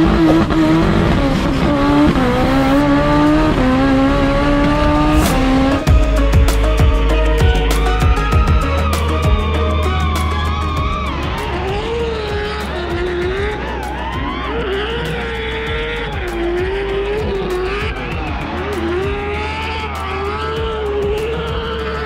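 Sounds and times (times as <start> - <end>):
background music: 0.0 - 22.0
car tyres squealing: 7.7 - 22.0.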